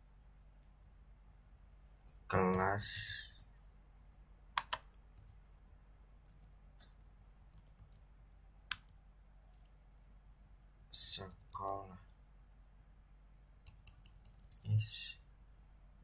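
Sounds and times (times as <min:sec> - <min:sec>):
faint low hum: 0:00.0 - 0:16.0
keyboard keystroke clicks: 0:04.6 - 0:05.4.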